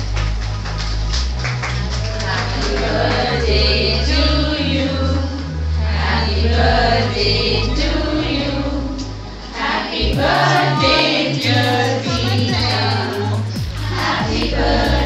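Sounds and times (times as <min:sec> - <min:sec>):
song with singing voices: 0:02.0 - 0:15.0
stepping bass line: 0:10.1 - 0:15.0.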